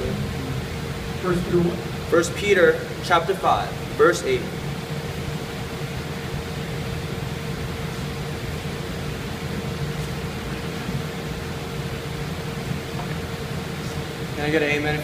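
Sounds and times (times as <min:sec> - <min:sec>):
low rumble: 0:00.0 - 0:01.1
faint steady hum: 0:00.0 - 0:15.0.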